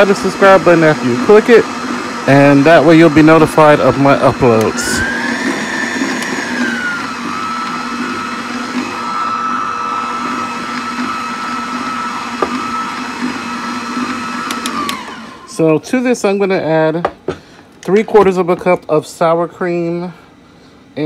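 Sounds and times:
stand mixer motor whining: 0.0s - 15.8s.

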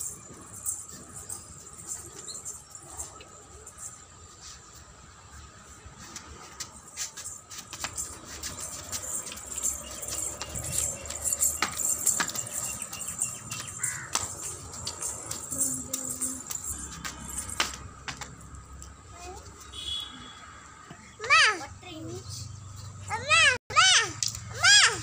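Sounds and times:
wooden staff clicking and knocking: 10.3s - 18.4s.

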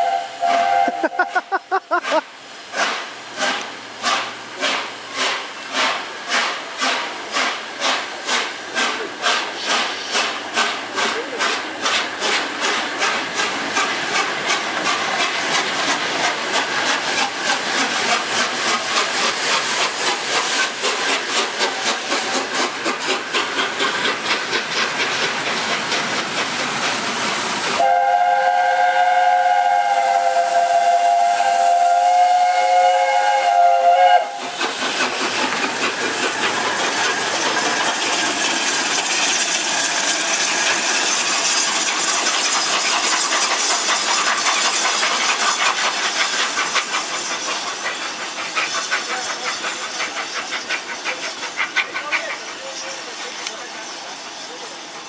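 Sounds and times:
steam chime whistle: 0.0s - 1.5s, 27.8s - 34.4s
steam hissing: 0.0s - 55.0s
steam locomotive chuffing: 0.0s - 55.0s
train rumble: 0.0s - 55.0s.

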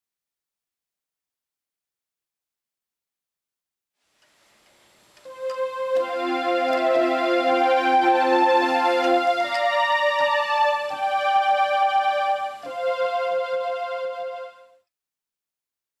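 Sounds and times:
electronic keyboard melody: 5.2s - 14.9s
low pulsing accompaniment: 5.3s - 14.6s.

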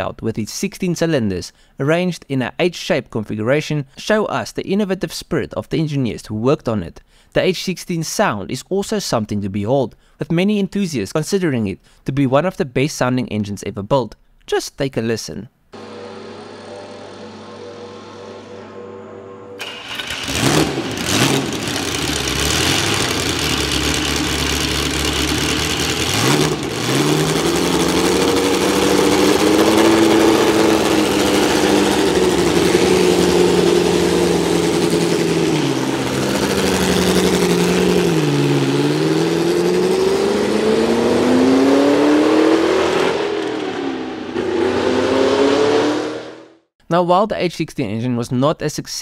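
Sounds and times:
racing car engine idling and revving: 15.8s - 46.7s.

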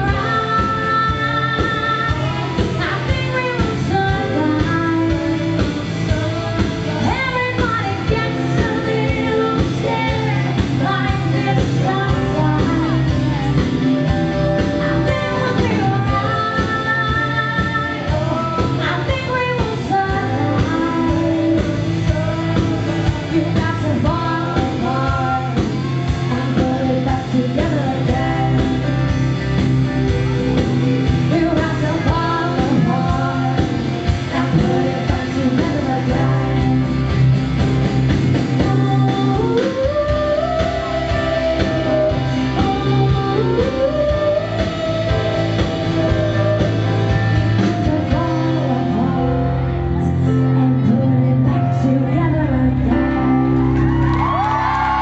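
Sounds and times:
woman singing into microphone: 0.0s - 29.6s, 31.2s - 37.6s, 38.3s - 55.0s
pop-rock band playing: 0.0s - 55.0s.

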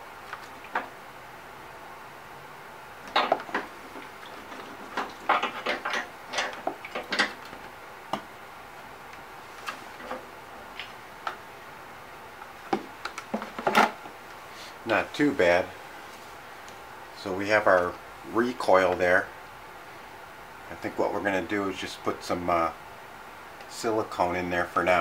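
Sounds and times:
hard plastic clattering and knocking: 3.1s - 8.3s, 12.7s - 14.0s.

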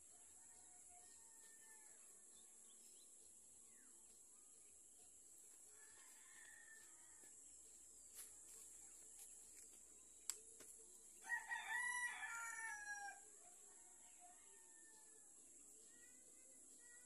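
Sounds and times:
rooster crowing: 5.8s - 7.3s, 11.2s - 13.2s.

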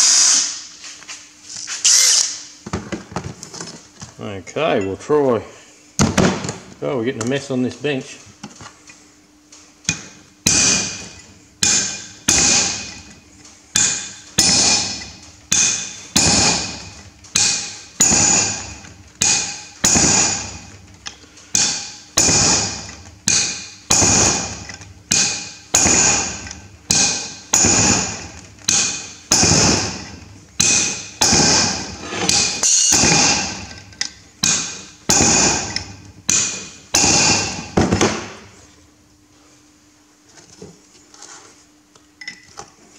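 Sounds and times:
hammer striking metal chisel: 9.9s - 20.8s, 21.5s - 38.2s.

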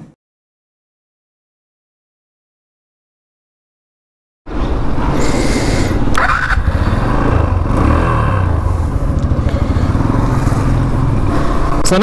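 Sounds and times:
motorcycle engine idling: 6.0s - 11.9s.

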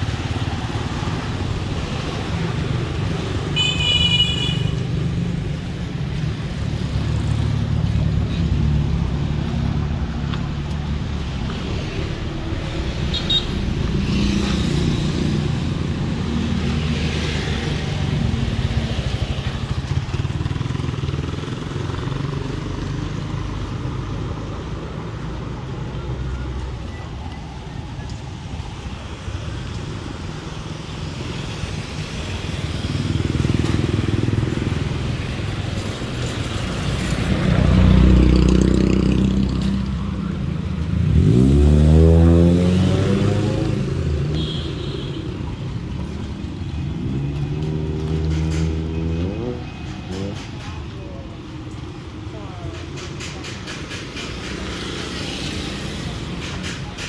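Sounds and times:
cars and motorcycles driving past: 0.0s - 57.0s.

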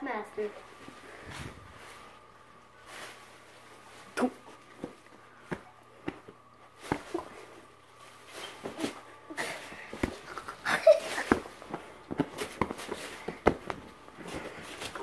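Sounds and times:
plastic rustling: 0.5s - 15.0s
bubble wrap popping: 9.8s - 14.0s.

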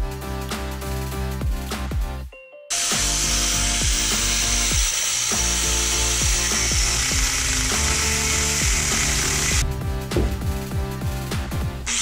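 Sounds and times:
background music: 0.0s - 12.0s
angle grinder running: 2.7s - 9.6s.

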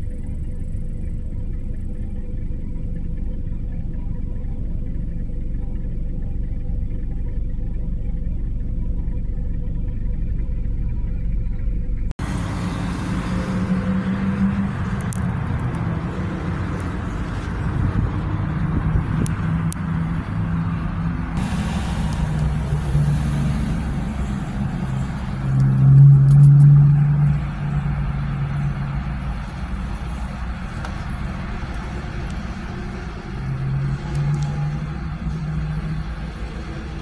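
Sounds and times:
road traffic passing: 10.0s - 37.0s.

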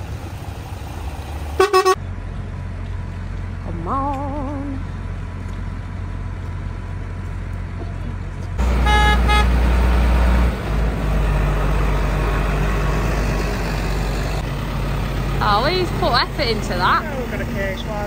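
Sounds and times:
diesel tractor engines running: 0.0s - 18.0s
horn beeps: 1.6s - 2.0s, 8.7s - 9.6s
horn toot: 1.6s - 2.0s, 8.6s - 9.7s.

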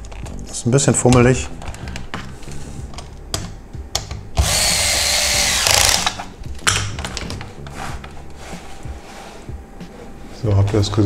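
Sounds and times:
electric screwdriver whirring: 4.4s - 6.2s.

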